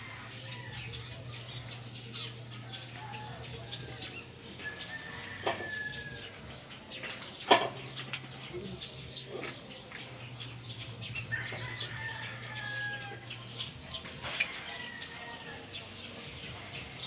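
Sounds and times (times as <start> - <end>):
small birds chirping: 0.0 - 17.0
sharp clicks: 7.0 - 8.4.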